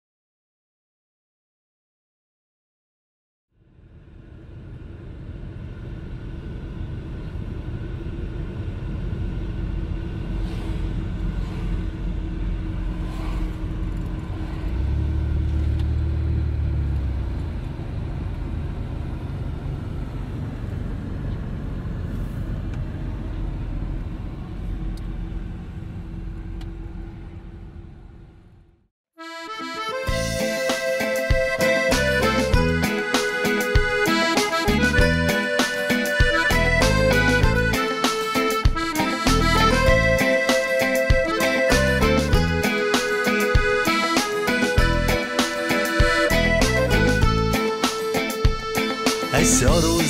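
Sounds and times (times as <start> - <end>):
constant hum: 3.6 - 28.8
vehicle rumbling: 3.6 - 28.9, 29.8 - 50.0.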